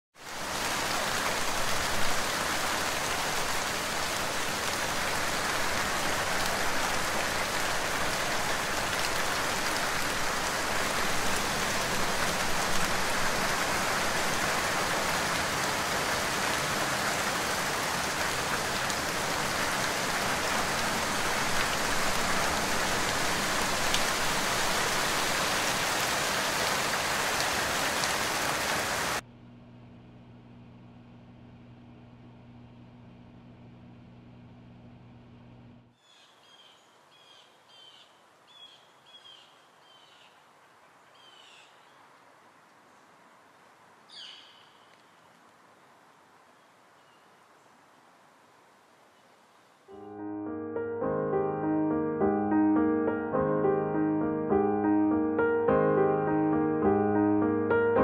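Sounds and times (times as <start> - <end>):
steady rain falling: 0.2 - 29.2, 36.3 - 49.9.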